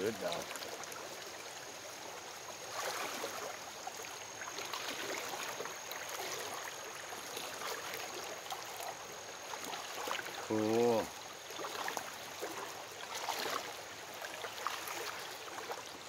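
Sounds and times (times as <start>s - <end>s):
rocky creek babbling: 0.0s - 16.0s
water sloshing around wading legs: 0.0s - 16.0s.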